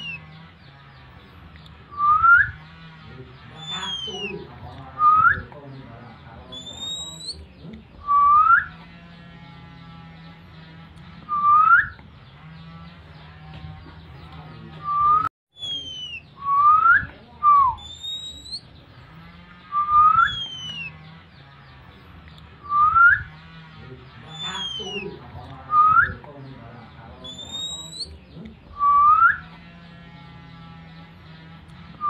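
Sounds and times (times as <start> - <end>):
whistled call notes: 2.0 - 2.6, 3.6 - 4.3, 8.1 - 8.8, 11.3 - 12.0, 14.8 - 18.7, 19.7 - 21.0, 22.6 - 23.3, 24.3 - 25.1, 27.3 - 28.1, 28.8 - 29.5.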